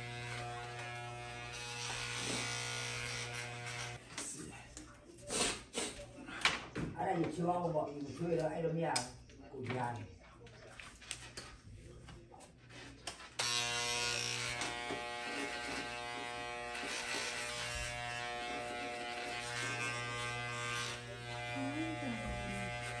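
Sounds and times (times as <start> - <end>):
electric hair clipper buzzing: 0.0 - 4.0, 13.4 - 23.0.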